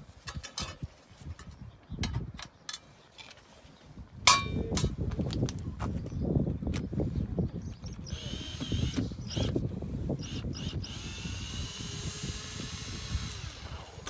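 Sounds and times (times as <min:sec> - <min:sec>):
cordless drill running: 0:08.0 - 0:09.6, 0:10.2 - 0:14.0.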